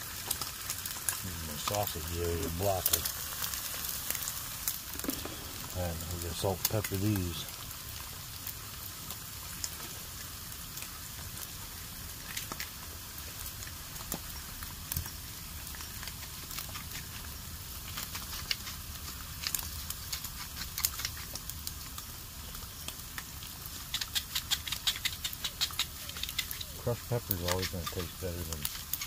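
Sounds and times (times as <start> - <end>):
food sizzling on a grill: 0.0 - 29.0.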